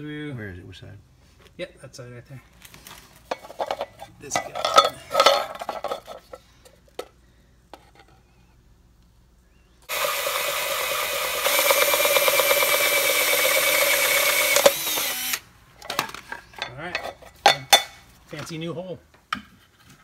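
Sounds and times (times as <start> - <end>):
drill cutting through plastic: 9.9 - 15.4.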